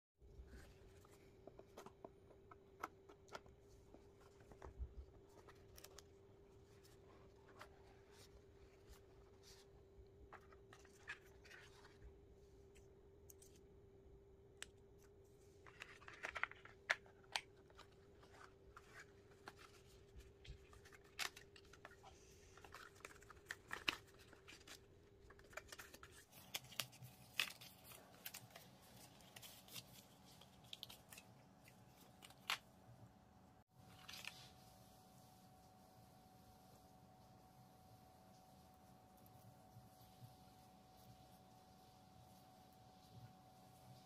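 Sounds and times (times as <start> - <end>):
faint steady hum: 0.2 - 44.0
packaging rustling: 15.6 - 32.6.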